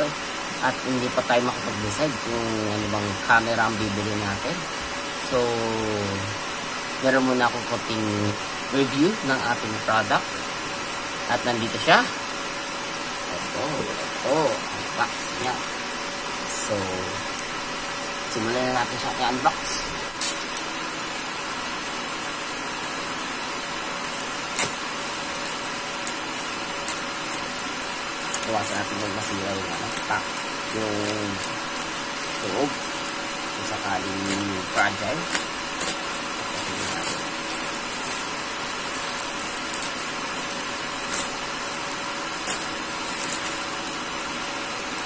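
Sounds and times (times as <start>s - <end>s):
faint hum: 0.0s - 45.0s
plastic rustling: 23.1s - 45.0s
knife slitting plastic pouch: 23.9s - 45.0s.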